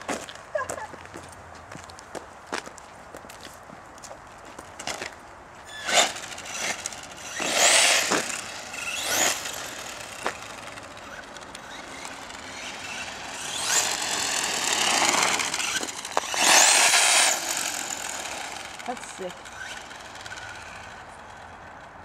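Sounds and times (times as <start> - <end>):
tyre noise on asphalt: 0.0 - 22.0
electric motor whining: 5.7 - 21.4.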